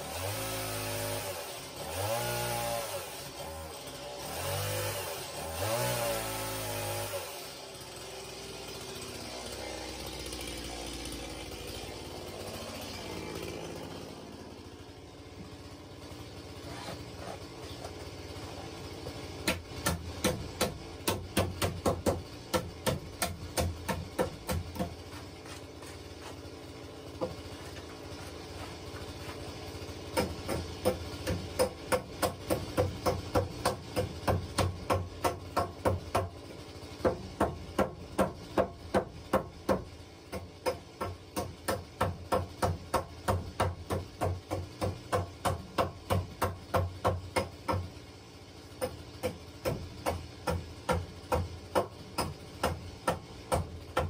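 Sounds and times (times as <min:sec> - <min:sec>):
hammer striking nails into wood: 0:19.4 - 0:25.0, 0:30.2 - 0:36.4, 0:37.0 - 0:47.9, 0:48.8 - 0:54.0.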